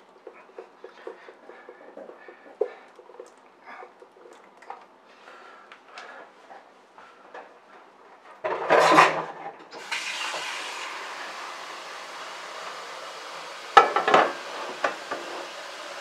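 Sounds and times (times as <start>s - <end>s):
tap water running: 9.7s - 16.0s.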